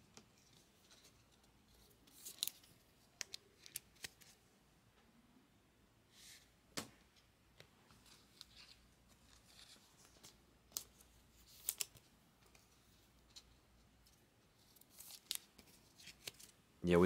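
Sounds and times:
cards rustling and sliding: 0.2 - 4.4, 7.9 - 16.6.

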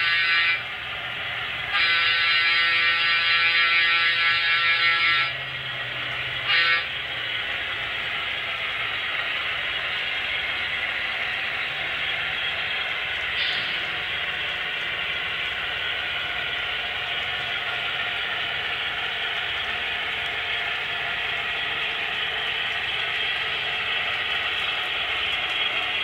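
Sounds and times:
train horn blast: 0.0 - 0.7, 1.7 - 5.6, 6.4 - 7.0
model train running: 0.0 - 26.0.

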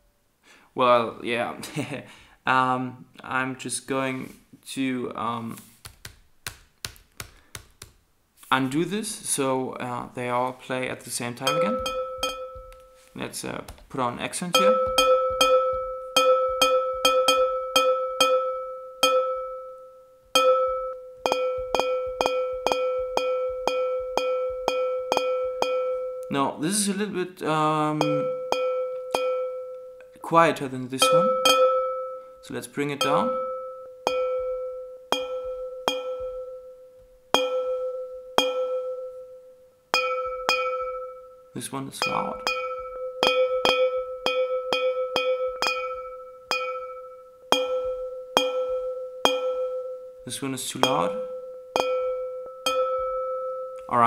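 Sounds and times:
bell-like glass pings: 11.4 - 13.2, 14.5 - 26.3, 27.9 - 30.2, 31.0 - 54.0.

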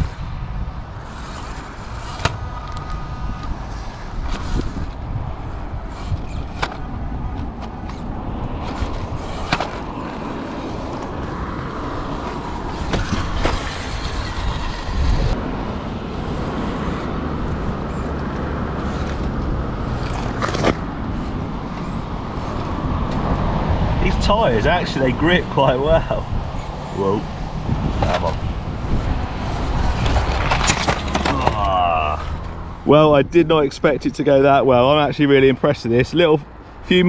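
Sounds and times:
toy car motor running: 1.0 - 3.0, 4.2 - 5.0, 5.9 - 6.8, 7.9 - 10.2, 12.7 - 15.4, 16.3 - 22.8
tyres grinding on loose stones: 29.8 - 32.6.

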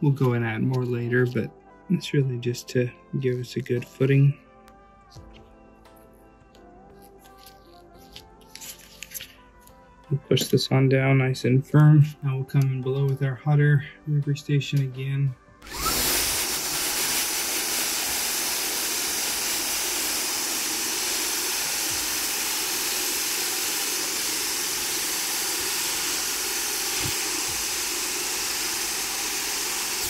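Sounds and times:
hot air blowing from nozzle: 15.6 - 30.0.

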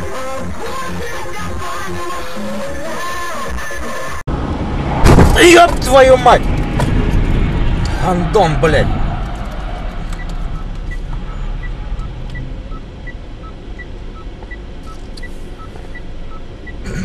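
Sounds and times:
turn signal ticking: 9.3 - 17.0.

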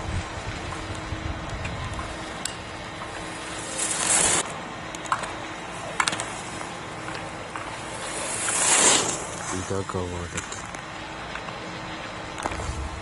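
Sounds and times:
skis carving on hard snow: 0.0 - 4.5, 6.0 - 10.7, 12.3 - 13.0.

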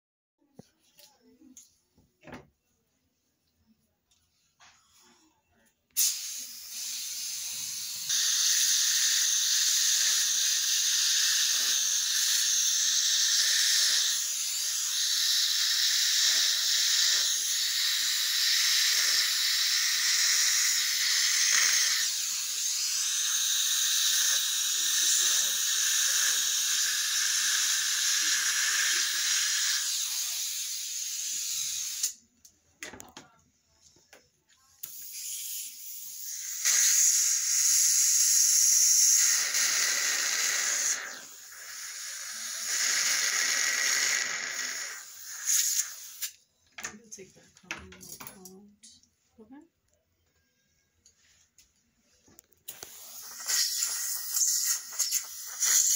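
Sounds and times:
dental suction tube hissing: 6.0 - 32.2, 34.8 - 46.4, 52.7 - 55.9.

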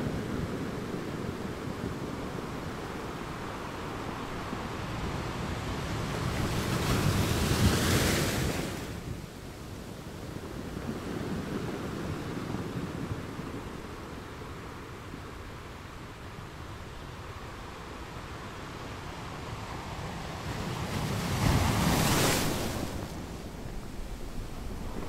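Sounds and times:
surf rushing: 19.5 - 25.0.

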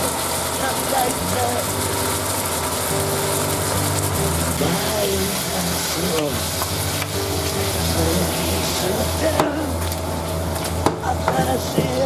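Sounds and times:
chicken sizzling in a pan: 0.0 - 12.0
low even hum: 0.0 - 12.0.

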